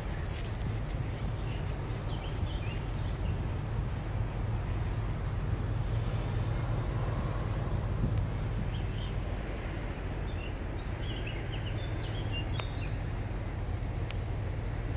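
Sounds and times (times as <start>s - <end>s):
birds chirping: 0.0s - 14.9s
low outdoor rumble: 0.0s - 14.9s.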